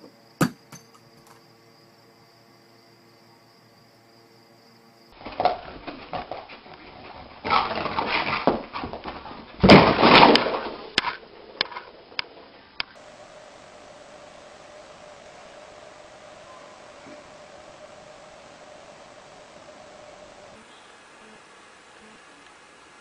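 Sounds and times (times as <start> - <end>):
faint steady tones: 12.6 - 23.0
dog barking: 16.4 - 17.3.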